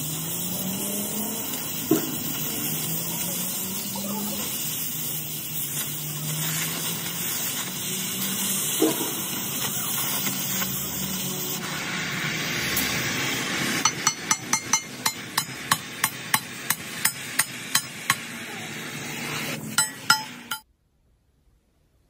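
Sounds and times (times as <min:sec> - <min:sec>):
steady hissing noise: 0:00.0 - 0:20.7
hammer striking metal: 0:13.8 - 0:18.3, 0:19.7 - 0:20.6.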